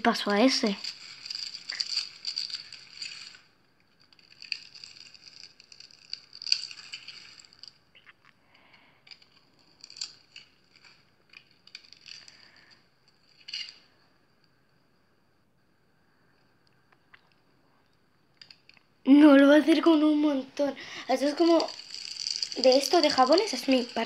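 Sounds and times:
dry soap crumbling and crunching: 0.2s - 14.0s, 21.0s - 24.0s.

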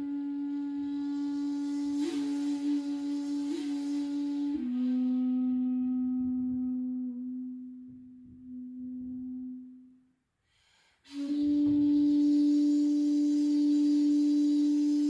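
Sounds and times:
bamboo flute low note: 0.0s - 10.1s, 11.1s - 15.0s
faint breath: 10.4s - 11.2s.

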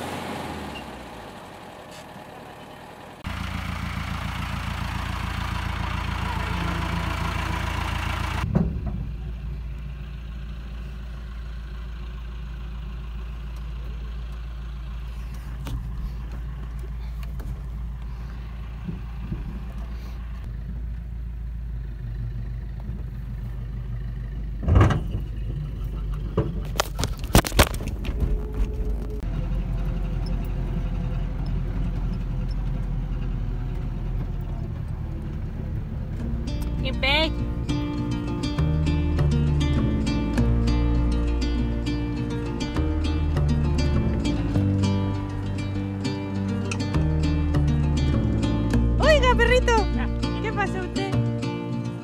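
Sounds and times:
van engine rumble: 0.0s - 52.0s
sharp knocks and rattles: 8.1s - 9.6s, 15.4s - 20.0s, 24.5s - 29.3s.

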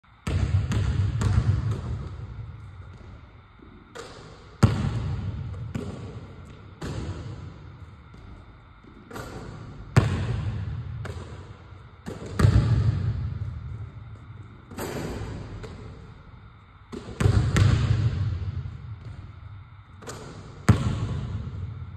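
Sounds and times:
basketball hitting rim: 0.2s - 2.3s, 3.9s - 7.5s, 9.1s - 13.6s, 14.7s - 16.1s, 16.9s - 19.3s, 20.0s - 21.8s
basketball thudding on gym floor: 0.3s - 2.2s, 12.0s - 13.6s, 16.9s - 19.3s, 20.0s - 21.6s.

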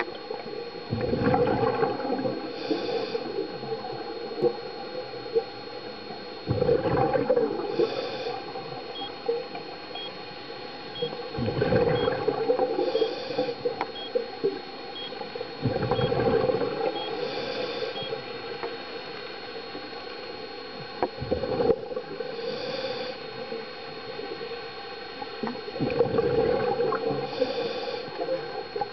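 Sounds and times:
exhaled bubbles rushing: 0.9s - 2.5s, 6.5s - 7.8s, 11.3s - 12.9s, 15.6s - 17.0s, 21.2s - 22.0s, 25.8s - 27.2s
diver breathing through regulator: 2.5s - 3.5s, 7.6s - 8.6s, 11.5s - 13.7s, 15.8s - 18.2s, 22.3s - 23.4s, 27.2s - 28.3s
faint electronic beep: 9.9s - 10.2s, 11.9s - 12.2s, 12.8s - 14.2s, 15.0s - 15.2s, 15.9s - 16.2s, 16.9s - 18.2s.

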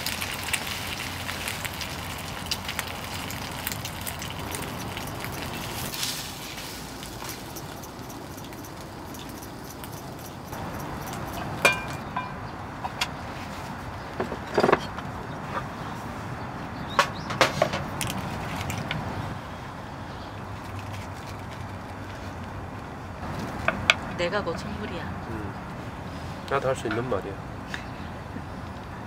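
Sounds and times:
chopsticks clinking on dishes: 7.2s - 12.4s.

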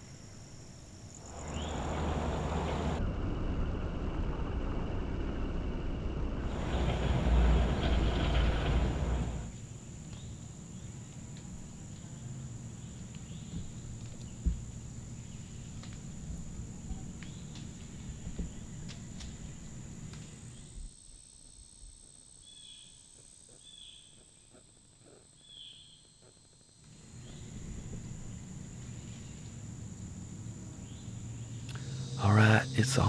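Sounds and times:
high-pitched insect buzz: 9.6s - 33.0s
faint bird chirps: 22.4s - 29.6s.

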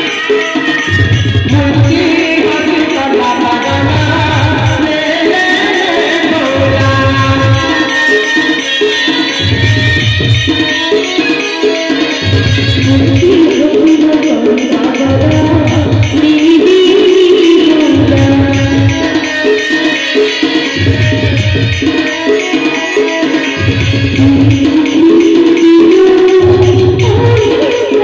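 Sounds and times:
quick hand drum percussion: 0.0s - 28.0s
person singing melody: 24.1s - 28.0s.

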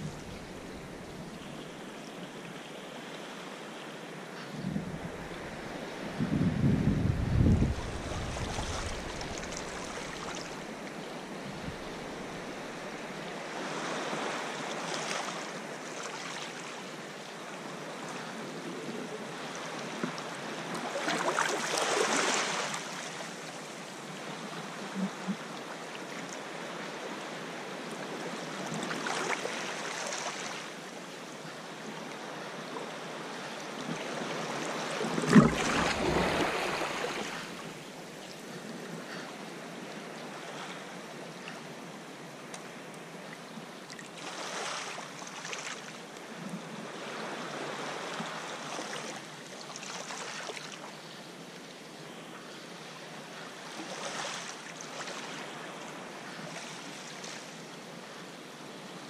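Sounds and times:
sea water sloshing against rocks: 7.1s - 10.8s, 34.1s - 37.8s.

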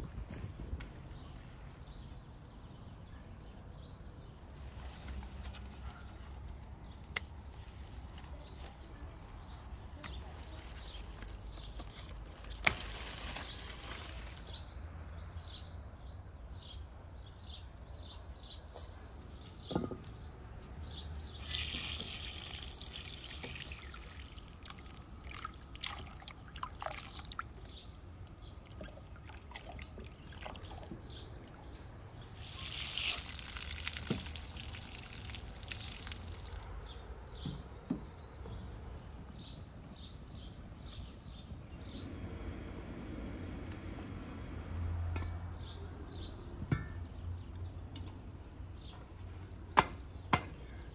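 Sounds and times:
water pouring: 21.4s - 27.6s, 28.6s - 30.9s, 32.4s - 36.7s
water sloshing in basin: 21.4s - 27.8s, 28.6s - 31.6s, 32.4s - 36.7s.

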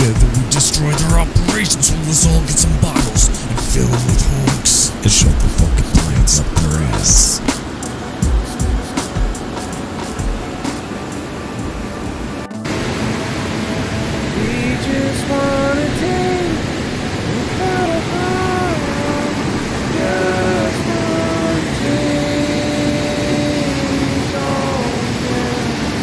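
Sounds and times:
melody of gliding notes: 0.0s - 26.0s
river rushing through rapids: 8.9s - 26.0s.

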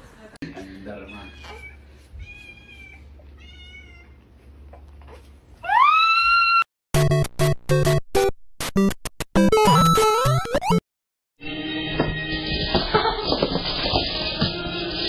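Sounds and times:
cat meowing: 1.1s - 4.2s.

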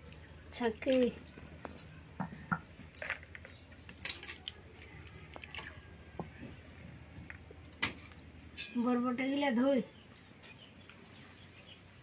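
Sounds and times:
water dripping: 0.0s - 6.6s
wet potatoes squelching and rustling: 2.9s - 8.4s.

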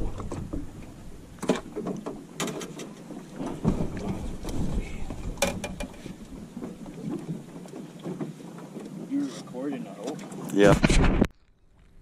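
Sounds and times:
low rumbling on microphone: 0.0s - 1.4s
sharp clicks and knocks: 5.4s - 6.0s.

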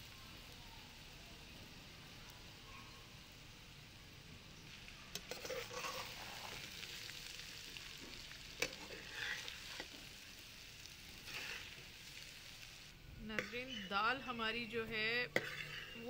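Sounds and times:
faint sizzle: 0.0s - 16.0s
metal spatula scraping a pot: 5.1s - 6.9s, 8.6s - 10.0s, 11.2s - 11.8s, 13.3s - 14.0s, 15.2s - 16.0s.

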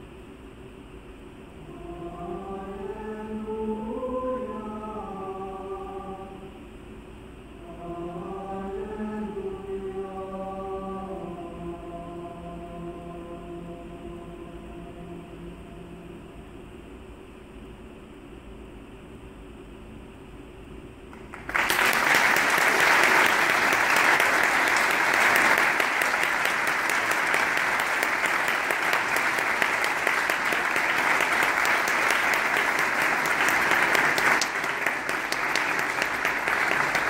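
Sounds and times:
audience applauding: 21.2s - 37.0s.

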